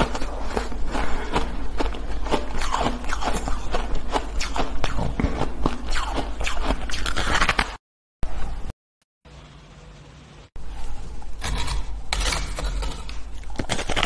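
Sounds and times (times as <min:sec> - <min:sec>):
biting and chewing shaved ice: 0:00.0 - 0:07.6, 0:11.4 - 0:14.0.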